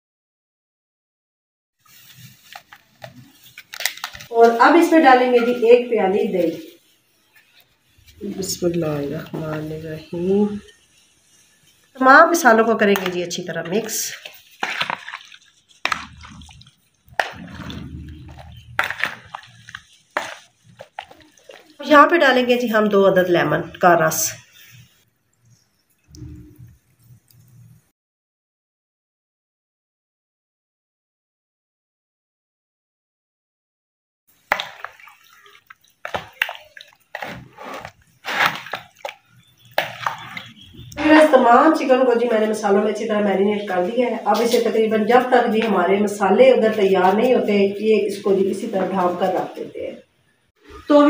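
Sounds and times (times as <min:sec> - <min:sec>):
wet squelching of meat mixing: 0:01.8 - 0:25.0, 0:34.3 - 0:49.7.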